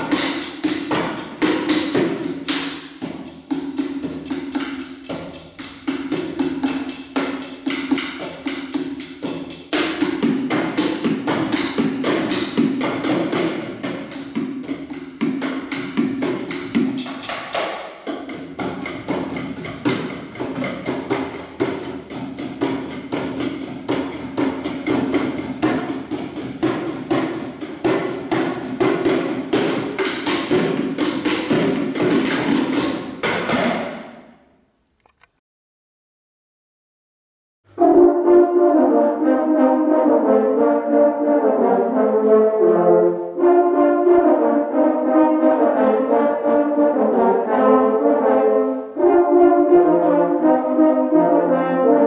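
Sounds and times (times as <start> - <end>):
drumsticks on plastic buckets: 0.0 - 33.7.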